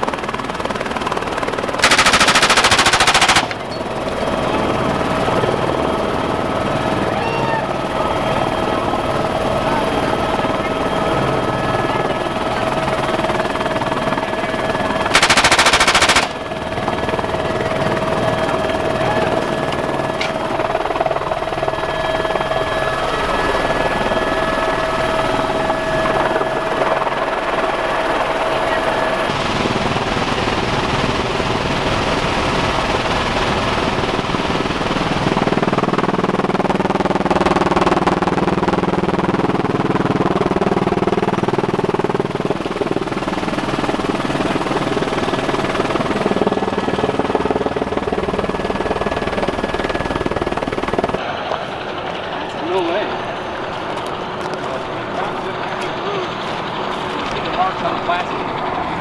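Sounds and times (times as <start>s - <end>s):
helicopter engine and rotor: 0.0s - 59.0s
machine-gun fire: 1.8s - 3.7s, 15.1s - 16.4s.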